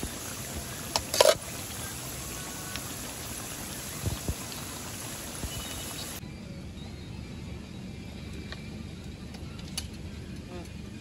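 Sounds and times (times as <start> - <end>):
flowing river water: 0.0 - 6.2.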